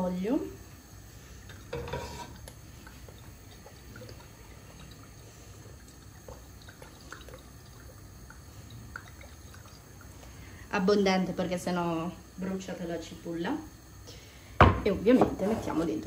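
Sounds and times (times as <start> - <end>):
low steady hum: 0.0 - 16.0
oil trickling into a pan: 1.2 - 10.6.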